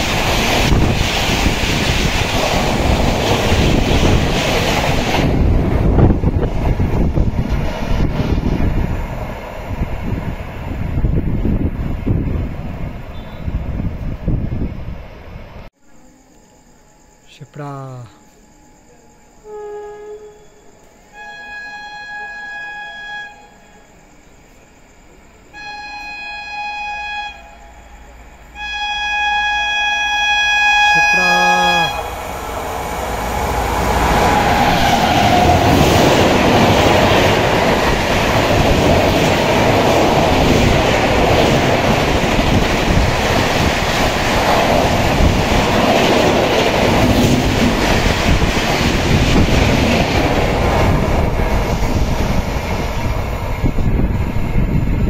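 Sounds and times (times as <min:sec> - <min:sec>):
train coaches rushing past: 0:00.0 - 0:15.6, 0:19.5 - 0:55.0
train horn blasts: 0:19.4 - 0:24.0, 0:25.5 - 0:32.4.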